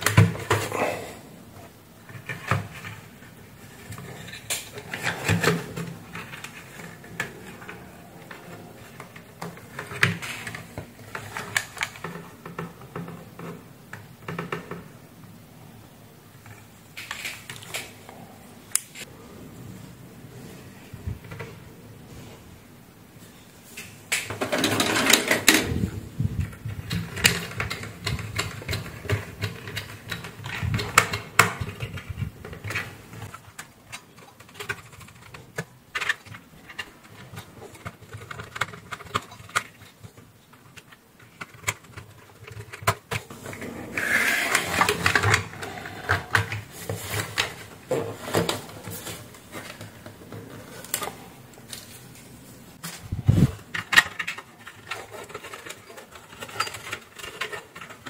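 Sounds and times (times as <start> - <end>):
plastic parts clicking and tapping: 0.0 - 0.7, 2.0 - 15.0, 23.7 - 43.4, 44.5 - 51.9, 52.8 - 58.0
rustling and clatter: 1.6 - 14.9, 23.2 - 58.0.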